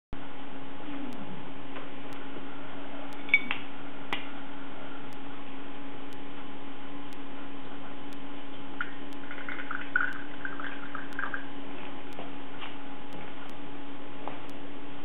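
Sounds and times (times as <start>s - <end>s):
steady low hum: 0.2s - 15.0s
liquid pouring into glass: 8.8s - 11.5s.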